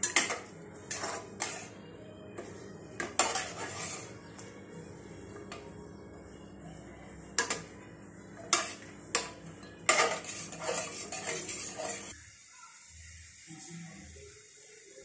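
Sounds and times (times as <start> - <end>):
spatula clinking on metal pot: 0.0 - 1.7, 3.0 - 4.0, 7.4 - 7.7, 8.4 - 12.1
spatula scraping and clattering: 0.0 - 1.8, 2.4 - 4.2, 7.4 - 7.7, 8.4 - 12.1.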